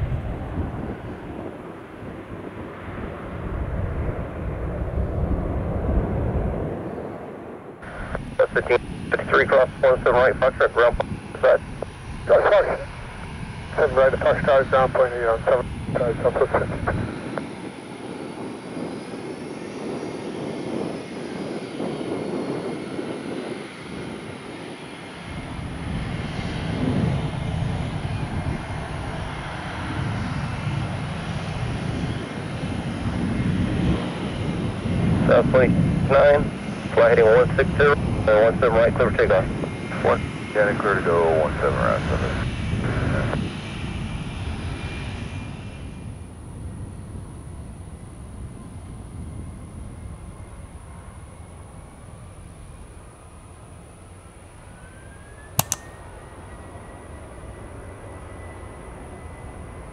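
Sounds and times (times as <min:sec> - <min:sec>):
jet engines high whine: 0:00.0 - 0:59.9
deep rumble: 0:02.2 - 0:17.3
faint high whine: 0:07.0 - 0:20.2.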